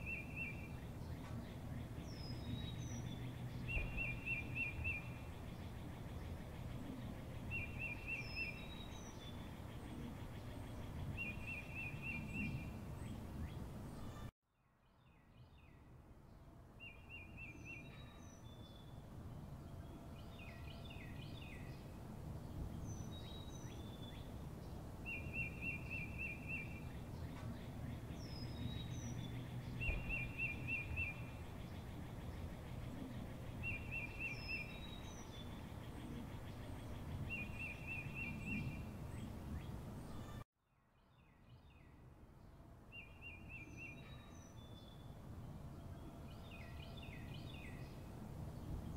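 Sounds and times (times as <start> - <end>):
high bird chirps: 0.0 - 5.5, 25.1 - 32.5
bird trills: 25.1 - 40.4.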